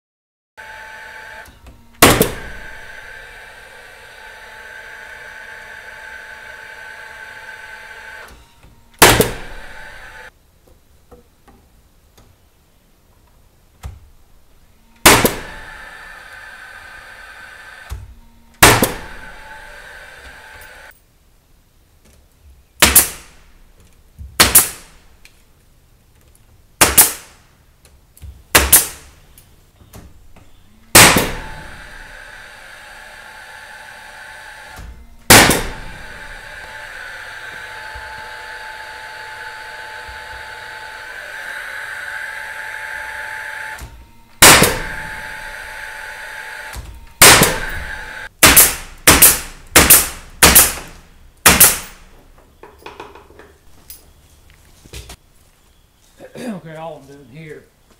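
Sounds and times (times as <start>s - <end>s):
steady machine noise: 0.6s - 10.3s, 14.4s - 21.0s, 30.4s - 51.1s
nail gun firing: 1.4s - 3.5s, 9.0s - 10.3s, 15.0s - 16.2s, 17.8s - 20.9s, 22.8s - 23.5s, 24.4s - 25.0s, 26.8s - 27.5s, 28.5s - 29.2s, 30.9s - 32.7s, 34.5s - 52.2s.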